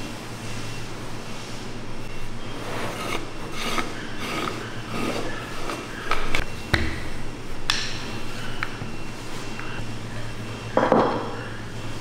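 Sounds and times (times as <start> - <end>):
wooden paddles scraping dough: 2.4 - 6.4.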